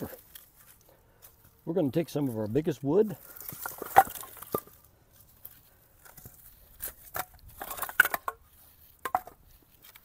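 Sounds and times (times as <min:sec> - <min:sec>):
firewood knocking on ground: 0:03.2 - 0:04.9, 0:06.0 - 0:10.0.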